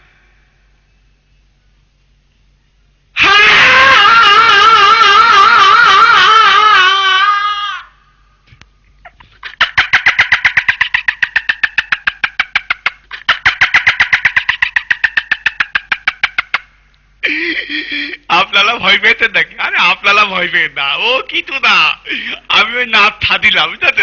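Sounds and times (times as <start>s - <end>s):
rapid pulsed laughter: 3.2s - 7.8s, 9.0s - 18.3s, 22.0s - 22.5s
man screaming: 3.2s - 8.0s.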